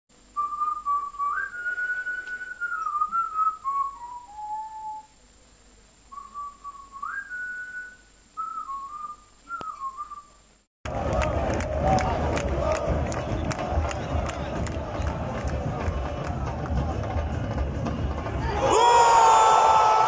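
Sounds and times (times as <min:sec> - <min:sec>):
person whistling a tune: 0:00.4 - 0:05.1, 0:06.1 - 0:10.3.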